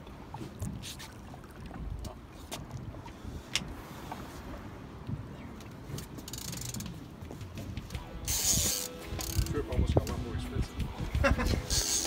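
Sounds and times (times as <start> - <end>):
fishing reel clicking and ratcheting: 6.0 - 6.9, 8.2 - 9.8, 11.5 - 12.0.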